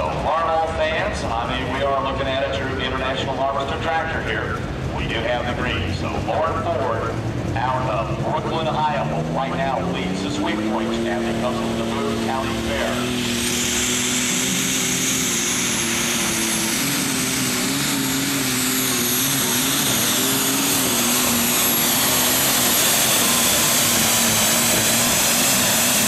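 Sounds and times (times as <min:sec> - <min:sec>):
tractor engine at full throttle: 0:00.0 - 0:26.0
turbocharger whistle: 0:09.6 - 0:26.0.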